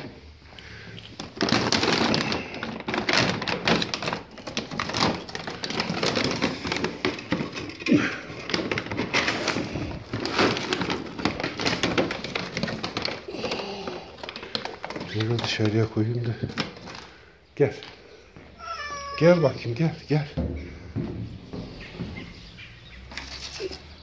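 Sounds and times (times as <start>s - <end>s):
plastic bag crinkling: 0.0s - 17.4s.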